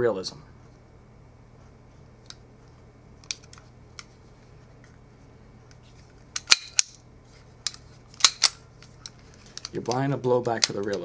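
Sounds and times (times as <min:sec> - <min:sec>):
pistol action clacking: 0:06.4 - 0:07.0, 0:07.6 - 0:08.6.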